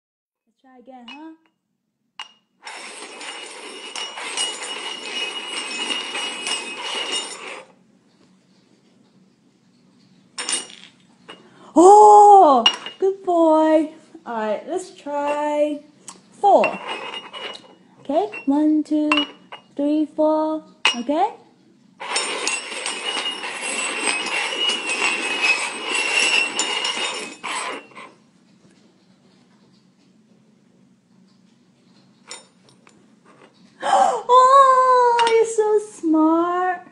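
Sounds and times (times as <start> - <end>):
metal cups scraping on wooden floor: 2.6 - 7.8, 16.4 - 19.7, 22.0 - 28.2.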